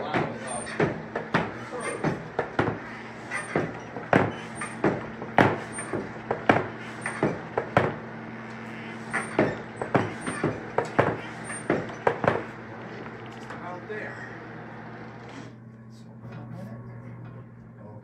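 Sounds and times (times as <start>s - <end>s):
forge fire hissing: 8.6s - 15.6s.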